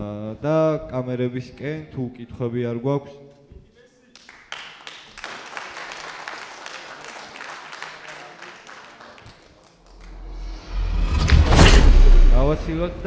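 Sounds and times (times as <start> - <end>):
audience applauding: 4.2 - 10.4
low rumble: 10.0 - 13.0.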